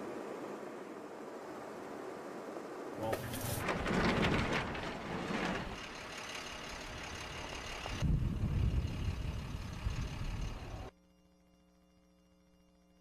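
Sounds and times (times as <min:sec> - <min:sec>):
truck engine and road noise: 0:00.0 - 0:10.9
truck engine low rumble: 0:00.2 - 0:10.9.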